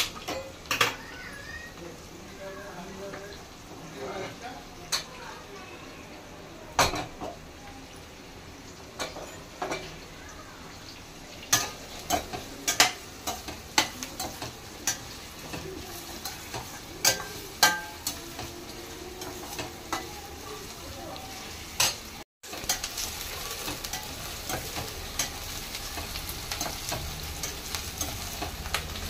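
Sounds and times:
faint sizzle: 0.0 - 29.0
pan clanking on burner: 11.5 - 18.5.

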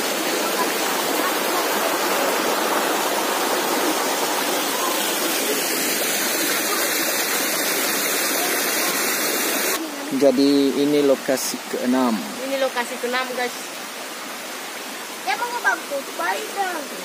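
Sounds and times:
stream water rushing over rocks: 0.0 - 17.0.

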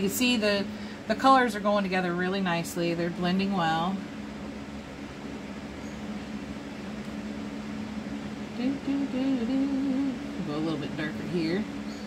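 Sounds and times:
woman's voice: 0.0 - 4.1, 8.6 - 11.7
low electrical hum: 0.0 - 12.0.

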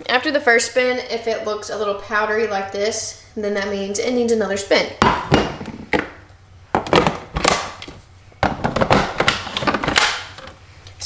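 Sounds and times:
scraping and knocking on plastic tub: 8.4 - 10.0.

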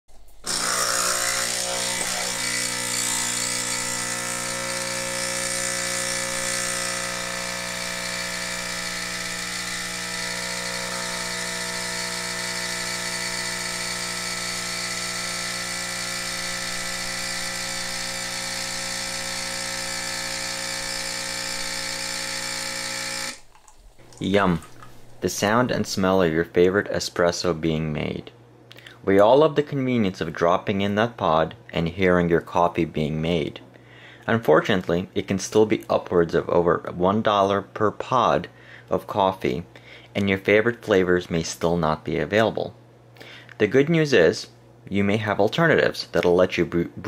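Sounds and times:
coffee machine pump buzzing: 0.2 - 25.9.

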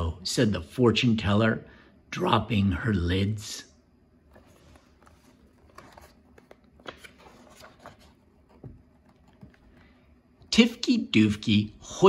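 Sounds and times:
paper page rustling: 4.2 - 10.5.

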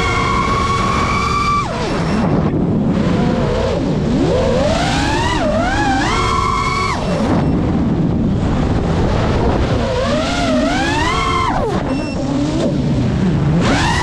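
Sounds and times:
quadcopter motors whining: 0.0 - 7.7, 8.8 - 13.0, 13.6 - 14.0
rushing wind: 0.0 - 14.0.

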